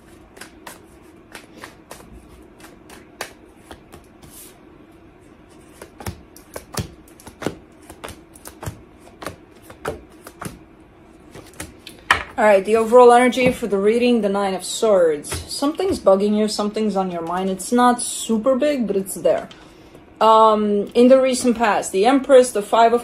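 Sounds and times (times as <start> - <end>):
cards shuffled: 0.0 - 4.6, 5.5 - 10.6, 11.3 - 12.0.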